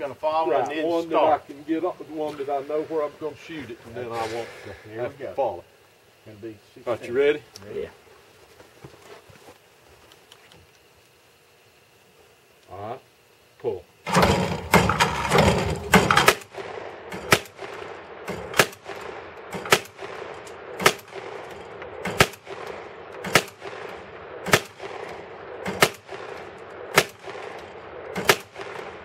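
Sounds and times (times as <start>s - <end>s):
shotgun shots: 14.1s - 29.0s.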